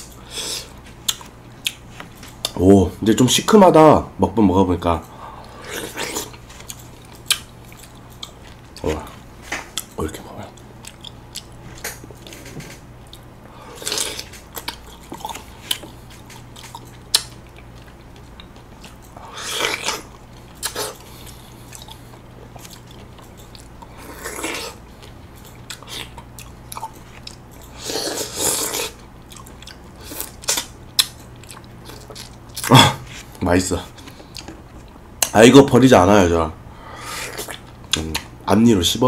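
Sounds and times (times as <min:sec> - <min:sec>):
chewing and biting fruit: 0:13.0 - 0:33.4.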